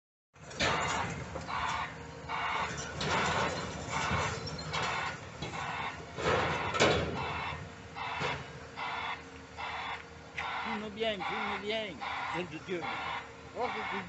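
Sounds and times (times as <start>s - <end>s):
excavator rumble: 0.4s - 14.0s
regular pulsing noise: 7.4s - 14.0s.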